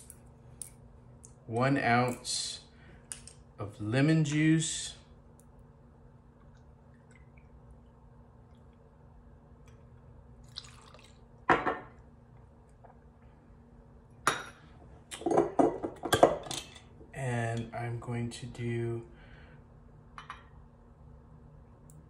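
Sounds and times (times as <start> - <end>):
faint steady hum: 0.0 - 22.0
liquid splashing over ice: 10.4 - 11.2.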